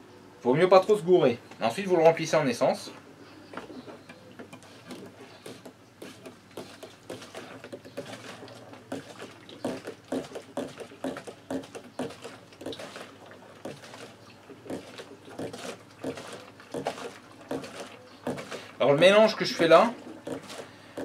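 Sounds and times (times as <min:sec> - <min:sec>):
hand pump strokes: 0:04.5 - 0:21.0.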